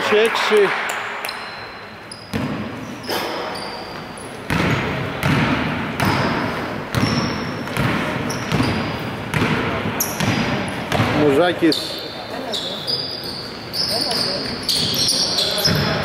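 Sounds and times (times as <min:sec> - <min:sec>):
sneakers squeaking on floor: 0:01.2 - 0:16.0
basketball bouncing indoors: 0:01.3 - 0:11.4, 0:14.3 - 0:16.0.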